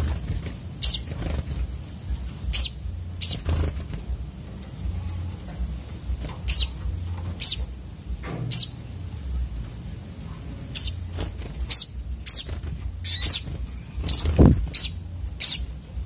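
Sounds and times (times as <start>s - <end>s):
birds giving high chip calls: 0.0s - 1.5s, 2.1s - 3.8s, 6.4s - 7.8s, 8.5s - 8.9s, 10.7s - 15.9s
wings fluttering: 0.0s - 7.8s, 10.7s - 15.8s.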